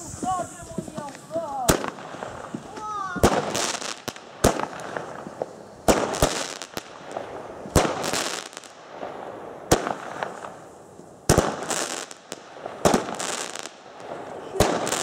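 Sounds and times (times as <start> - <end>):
firework bangs: 0.0 - 15.0
firework crackling hiss: 0.0 - 15.0.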